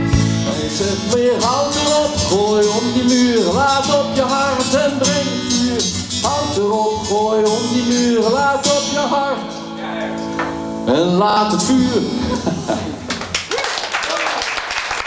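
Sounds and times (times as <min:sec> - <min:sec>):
man singing with vibrato: 0:00.0 - 0:10.1
strummed acoustic guitar: 0:00.0 - 0:13.0.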